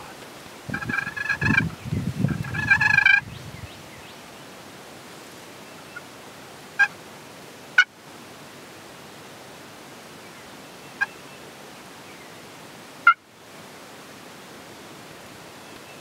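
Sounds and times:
short sharp turkey calls: 0.7 - 1.7, 2.4 - 3.2, 6.8 - 7.0
turkey gobbling: 0.7 - 1.7, 2.4 - 3.2.

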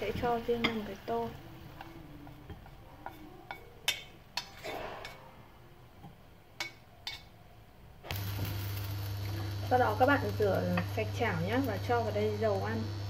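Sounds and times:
chopsticks clicking against pan: 1.8 - 4.5.

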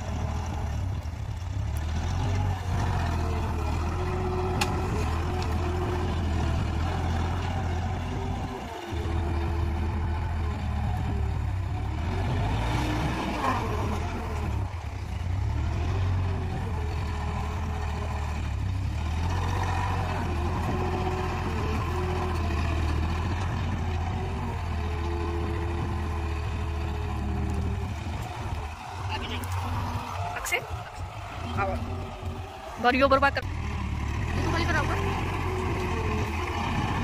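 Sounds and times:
tractor diesel engine under load: 0.0 - 37.0.

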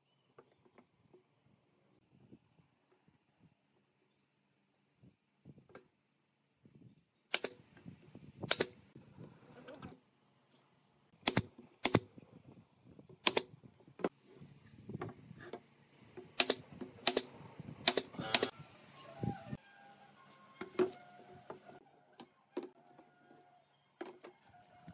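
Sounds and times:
nail gun firing into wood: 7.3 - 7.6, 8.5 - 8.8, 11.2 - 12.1, 13.2 - 13.6, 16.4 - 18.5.

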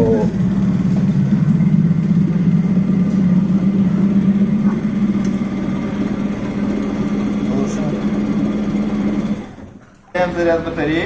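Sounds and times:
outboard motor running: 0.0 - 10.9.

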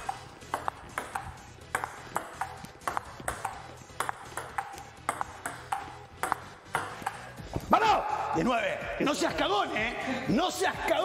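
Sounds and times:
table tennis ball clicks: 0.0 - 7.3.

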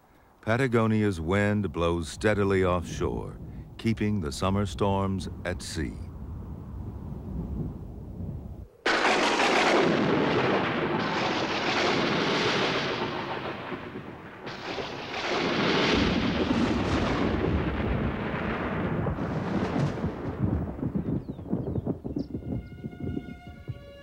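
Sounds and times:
sharp thunder cracks: 8.8 - 22.1
thunder crash rolling: 8.8 - 22.2.

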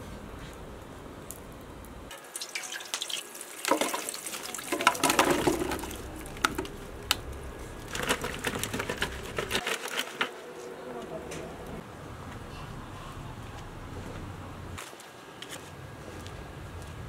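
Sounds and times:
water splashing and draining: 2.1 - 7.2.

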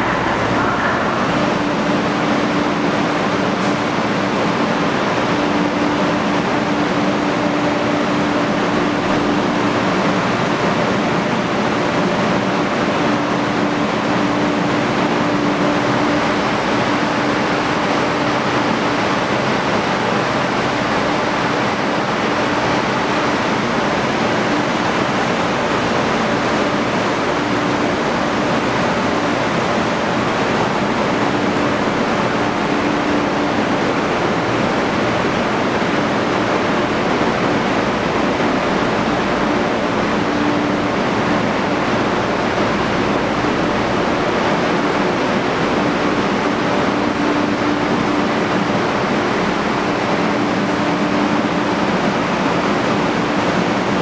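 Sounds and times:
air-conditioning fans rushing: 0.0 - 54.0.

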